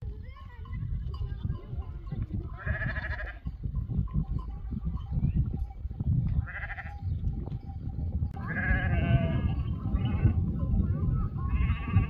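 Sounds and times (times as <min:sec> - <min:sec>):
sheep and goats bleating: 0:00.2 - 0:03.7, 0:06.3 - 0:07.2, 0:08.3 - 0:10.6, 0:11.2 - 0:12.0.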